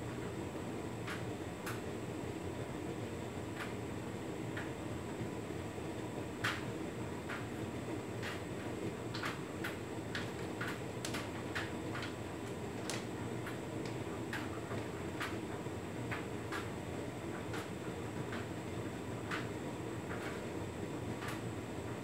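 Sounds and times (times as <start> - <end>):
washer dryer drum humming: 0.0 - 22.0
load tumbling clicks and taps: 8.2 - 8.5, 9.1 - 16.8.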